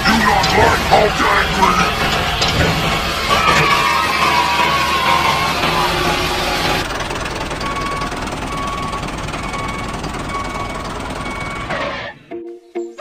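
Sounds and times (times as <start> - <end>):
toy tractor engine rattle: 0.0 - 12.0.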